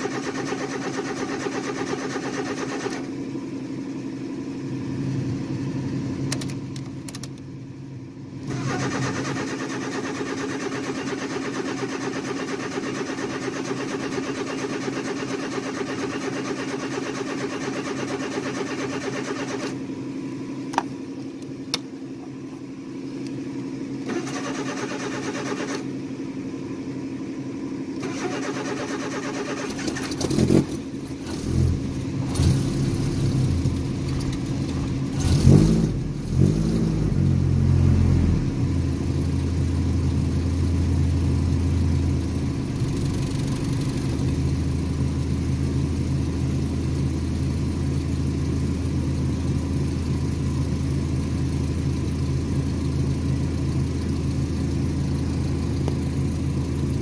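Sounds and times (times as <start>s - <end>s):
pickup engine idling: 0.0s - 28.0s, 29.7s - 35.2s, 38.4s - 57.0s
sharp clicks: 6.3s - 7.4s.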